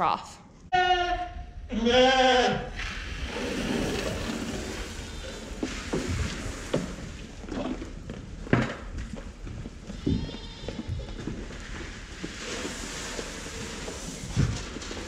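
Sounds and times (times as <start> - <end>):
feed poured into trough: 2.9 - 7.4, 12.0 - 15.0.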